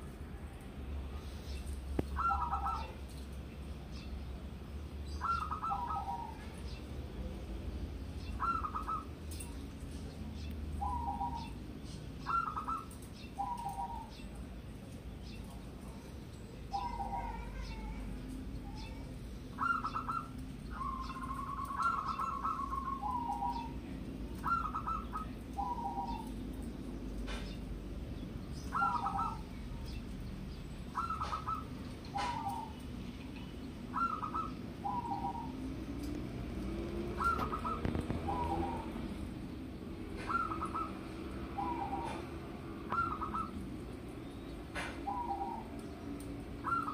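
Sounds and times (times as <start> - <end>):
dove cooing: 2.0 - 3.1, 5.2 - 6.8, 8.2 - 9.5, 10.8 - 11.6, 12.2 - 14.2, 16.6 - 26.6, 28.6 - 29.5, 30.9 - 32.8, 33.9 - 35.9, 36.6 - 43.7, 44.6 - 45.8, 46.5 - 46.9.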